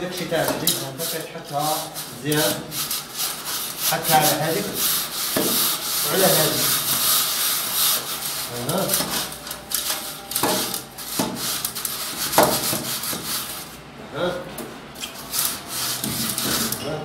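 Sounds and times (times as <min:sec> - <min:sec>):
gritty mortar scraping: 0:15.0 - 0:16.9.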